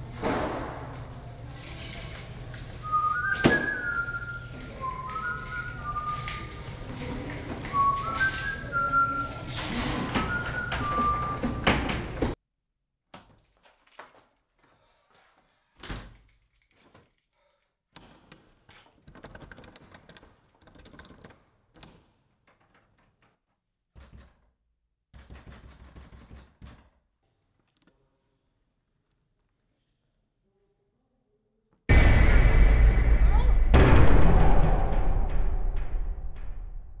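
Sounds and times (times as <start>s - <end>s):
music with whistled melody: 2.8s - 6.8s, 7.6s - 11.7s.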